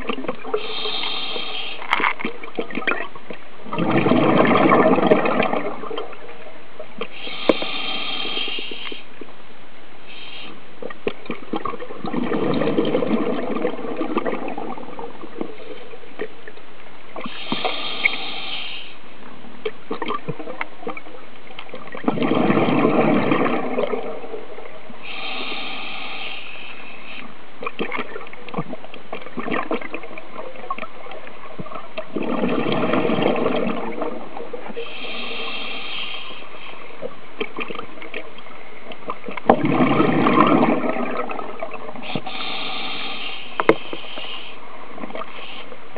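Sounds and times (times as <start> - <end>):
exhaled bubbles gushing: 0.0 - 1.2, 1.8 - 8.4, 10.8 - 16.6, 19.6 - 25.1, 27.6 - 35.4, 37.0 - 42.5
steady underwater hiss: 0.0 - 45.9
diver breathing through regulator: 0.6 - 1.9, 7.1 - 9.1, 17.2 - 19.0, 25.0 - 27.3, 34.8 - 36.9, 42.0 - 44.6.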